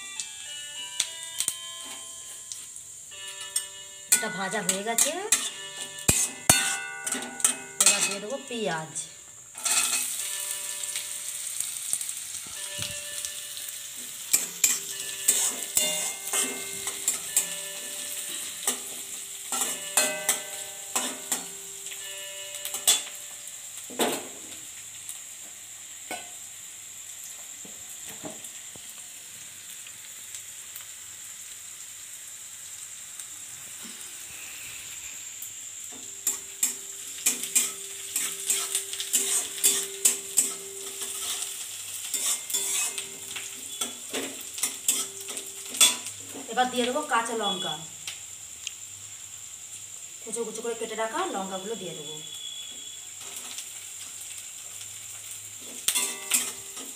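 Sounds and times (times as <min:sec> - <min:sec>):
onion sizzling in hot oil: 0:00.0 - 0:56.9
metal spatula scraping pan: 0:03.5 - 0:08.4, 0:09.6 - 0:10.5, 0:14.3 - 0:18.9, 0:36.2 - 0:46.1, 0:55.9 - 0:56.9.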